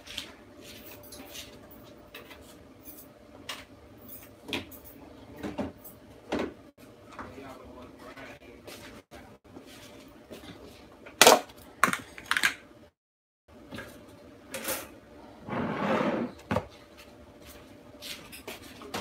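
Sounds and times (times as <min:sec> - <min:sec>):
scraping on counter: 0:15.4 - 0:16.6.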